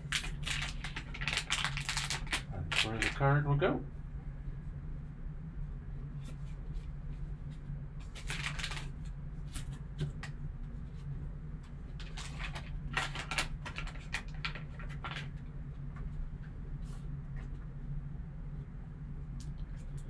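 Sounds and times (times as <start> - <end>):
foil pack crinkling: 0.0 - 3.4, 8.0 - 9.8, 12.0 - 15.4
low steady hum: 0.0 - 20.0.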